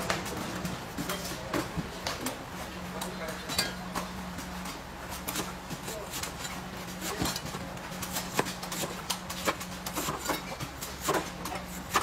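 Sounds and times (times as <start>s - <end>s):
cleaver chopping coconut: 8.0s - 12.0s.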